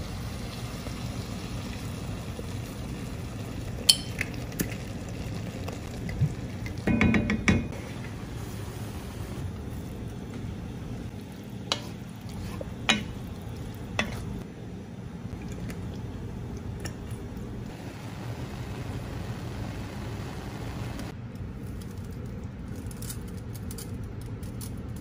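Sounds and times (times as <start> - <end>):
low steady sizzle: 0.0 - 24.4.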